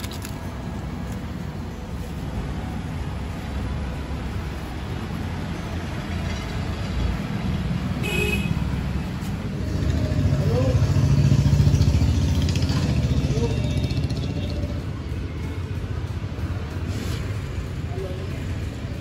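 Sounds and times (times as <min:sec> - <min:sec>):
road traffic rumble: 0:00.0 - 0:19.0
vehicle horn toot: 0:08.0 - 0:08.7.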